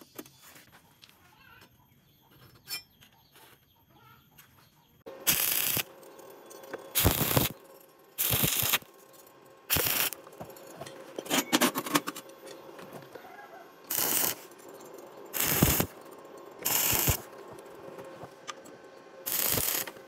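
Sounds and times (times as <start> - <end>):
welding arc hissing: 5.1 - 10.5, 13.9 - 16.0, 16.6 - 17.7, 19.2 - 20.0.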